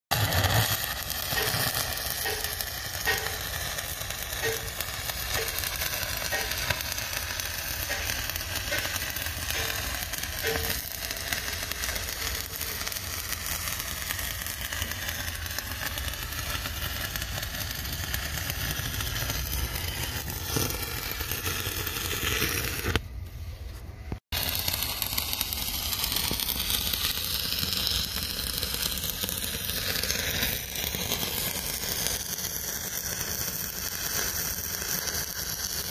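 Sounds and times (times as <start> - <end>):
welding arc crackling: 0.1 - 23.2, 24.1 - 35.9.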